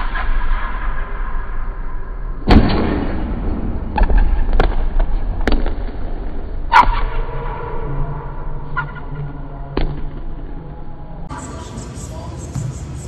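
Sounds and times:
basketball loud bang: 2.4 - 6.0.

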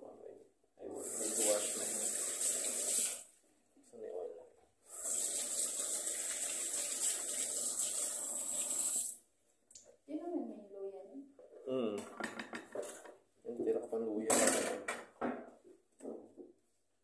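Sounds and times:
tap water running over hands: 1.0 - 3.2, 4.9 - 9.2.

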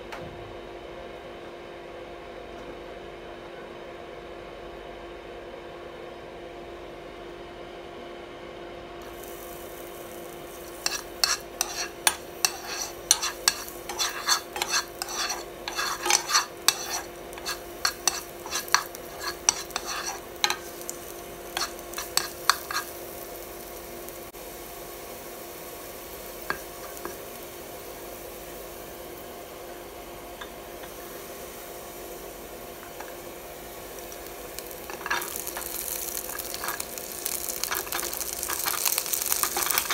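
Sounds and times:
garlic sizzling in hot oil: 9.0 - 39.9
steady low hum: 9.0 - 39.9
plastic spoon scraping a pan: 10.8 - 20.9, 21.6 - 22.9, 37.6 - 39.9.

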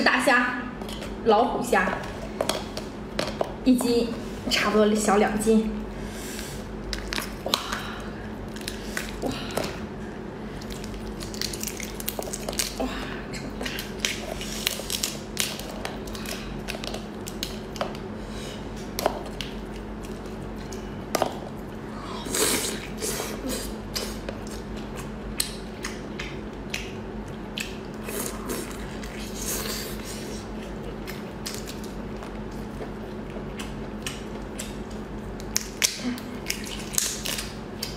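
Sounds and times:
faint steady hum: 0.0 - 37.9
chewing: 10.5 - 18.0, 23.9 - 37.9
wet squishing: 10.5 - 18.0, 23.9 - 37.9
prawn shell cracking: 10.6 - 12.8.

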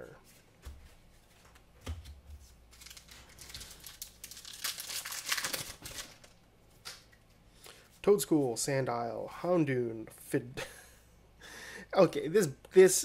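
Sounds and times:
foil wrapper crinkling and tearing: 2.7 - 6.4.

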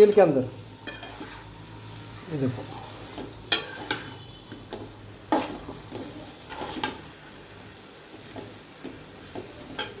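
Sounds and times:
faint sizzle of frying: 0.0 - 10.0
spatula scraping metal pan: 3.1 - 4.4, 5.3 - 7.1.

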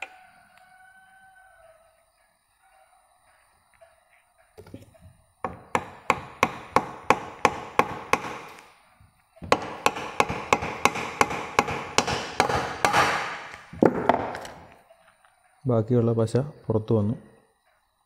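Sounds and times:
hammer tapping on metal: 9.5 - 14.2.

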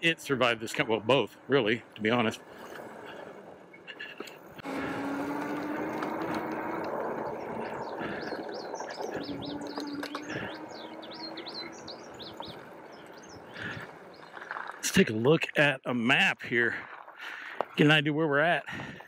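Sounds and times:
tyres rolling on trail: 0.0 - 19.0
birds chirping: 0.4 - 15.7
electric hub motor whining: 2.6 - 14.7.

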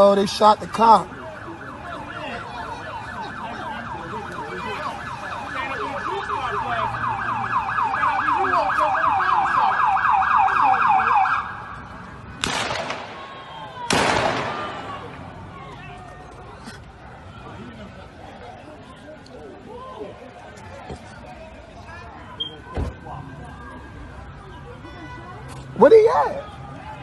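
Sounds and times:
siren yelping: 0.0 - 12.1
bursts of rushing noise: 11.8 - 15.6.

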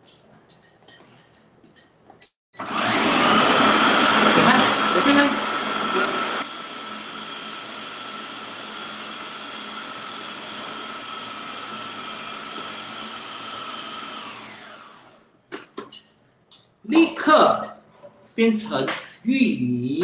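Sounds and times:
food processor motor running: 2.6 - 15.3.

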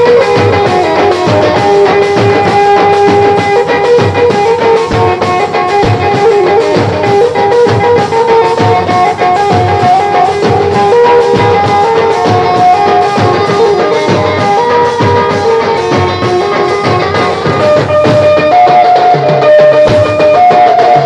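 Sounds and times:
held-note melody: 0.0 - 21.0.

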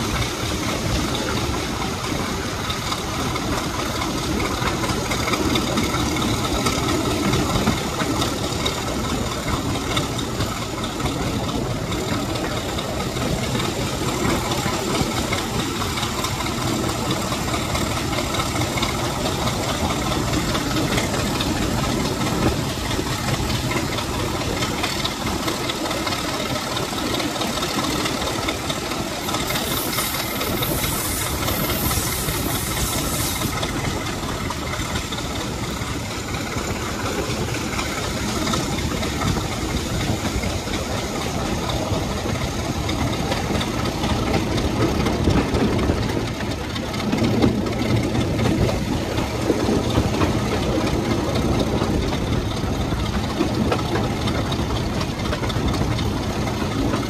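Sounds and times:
locomotive diesel engine running: 0.0 - 57.0
loud hiss: 29.2 - 34.1.

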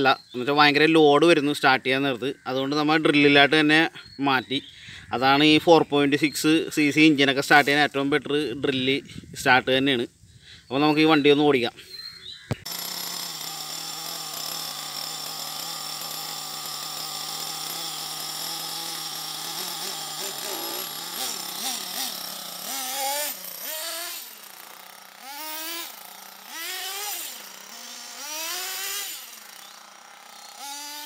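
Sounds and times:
nitro engine idling and revving: 12.6 - 31.0.

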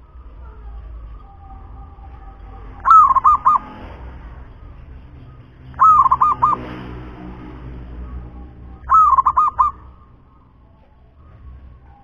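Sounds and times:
dove cooing: 0.4 - 3.8, 5.8 - 6.7, 8.0 - 10.8.

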